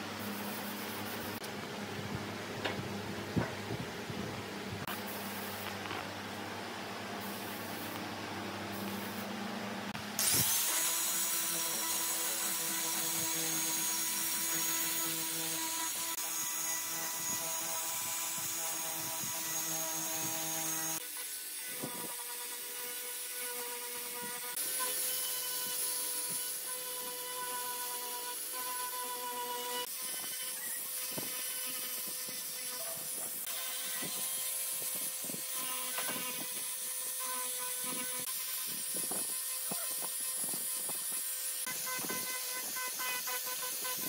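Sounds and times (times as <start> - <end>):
wood lathe whining with hiss: 10.2 - 44.0.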